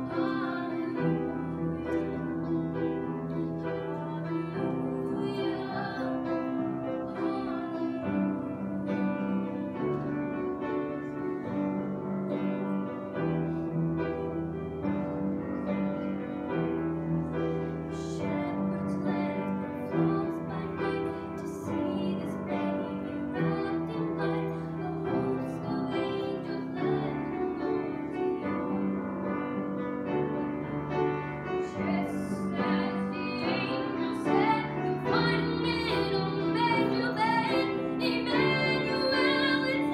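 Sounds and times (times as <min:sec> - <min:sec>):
woman singing a carol: 0:00.0 - 0:02.7, 0:03.7 - 0:08.2, 0:18.0 - 0:28.7, 0:31.6 - 0:39.9
piano accompaniment: 0:00.0 - 0:39.9.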